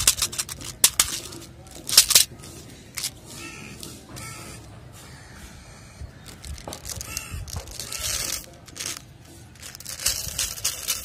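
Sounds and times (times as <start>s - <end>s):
candies rattling onto straw mat: 0.0s - 3.2s, 6.2s - 11.0s.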